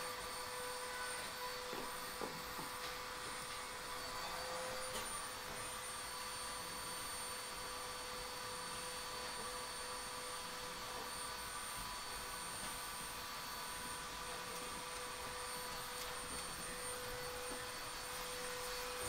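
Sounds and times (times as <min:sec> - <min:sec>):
high-pitched whining tones: 0:11.1 - 0:19.0.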